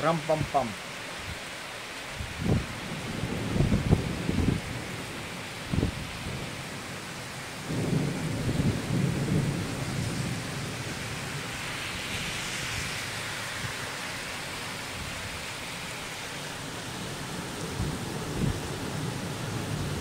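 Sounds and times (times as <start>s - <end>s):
heavy rain falling: 0.0s - 20.0s
low thunder rumble: 2.4s - 6.7s, 7.6s - 12.1s.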